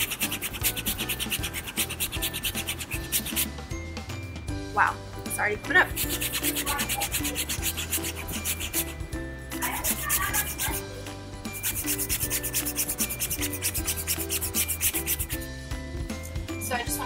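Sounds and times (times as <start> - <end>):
brush scrubbing fabric cushion: 0.0 - 3.6, 5.9 - 10.8, 11.5 - 15.5.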